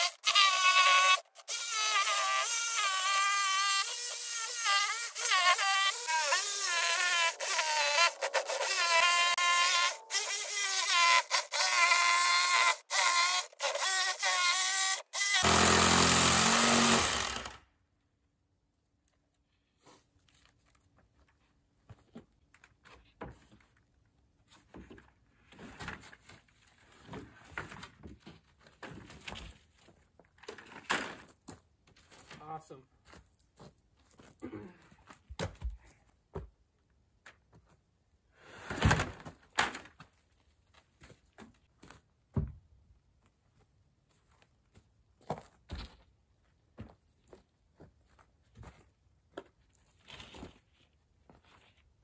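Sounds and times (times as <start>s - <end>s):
electric jigsaw cutting wood: 0.0s - 17.6s.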